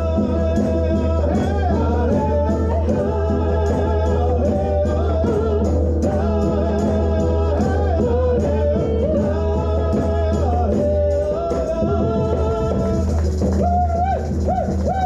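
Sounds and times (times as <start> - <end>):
frame drum beat: 0.0 - 15.0.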